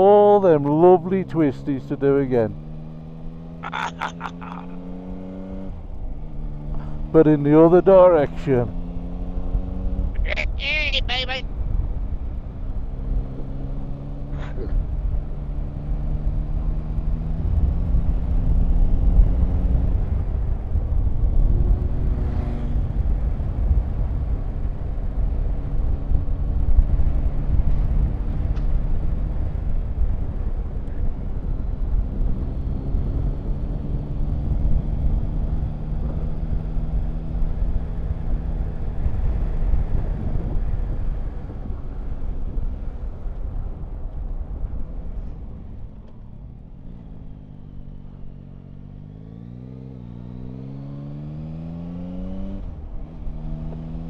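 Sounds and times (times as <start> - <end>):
motorcycle engine revving: 0.9 - 10.2, 12.7 - 24.2, 31.3 - 41.2, 46.6 - 54.0.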